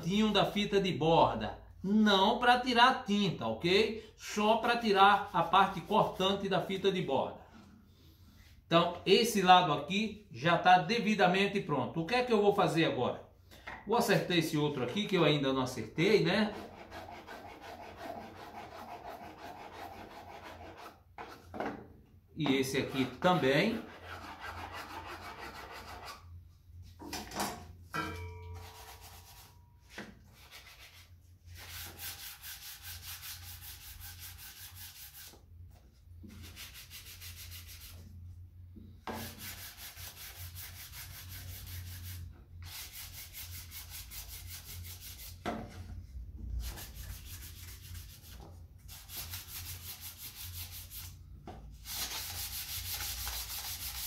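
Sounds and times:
hand sanding wood: 16.5 - 21.4, 23.7 - 26.2, 30.4 - 35.4, 36.3 - 38.0, 39.2 - 45.4, 46.6 - 51.2, 51.8 - 54.0.

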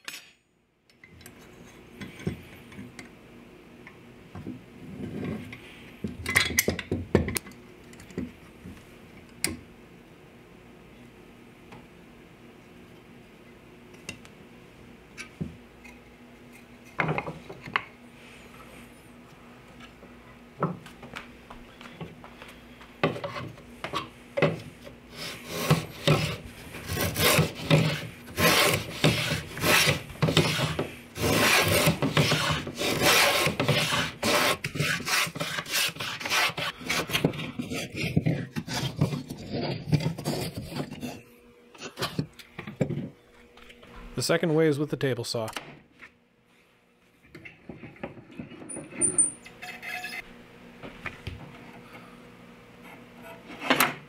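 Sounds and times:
hand plane strokes on wood: 25.1 - 41.2.

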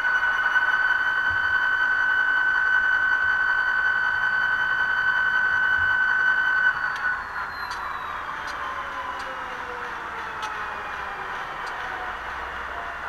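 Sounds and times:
slowly falling tones: 0.0 - 13.0
model locomotive diesel idling: 6.2 - 13.0
sharp ticks: 6.9 - 9.4, 11.5 - 11.9.

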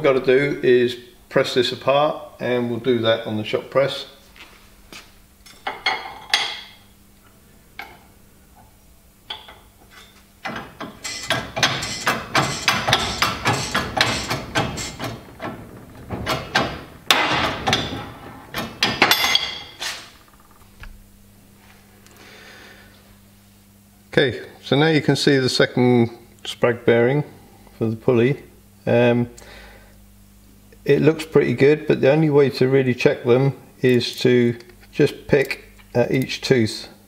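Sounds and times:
hydraulic press clacks and knocks: 10.4 - 19.7.

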